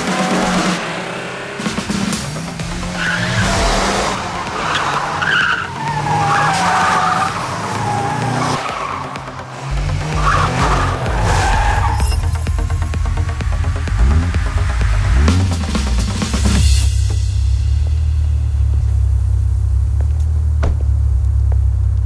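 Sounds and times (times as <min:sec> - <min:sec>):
music: 0:00.0 - 0:20.3
car engine running hard: 0:00.0 - 0:22.0
tyres squealing: 0:02.8 - 0:12.8.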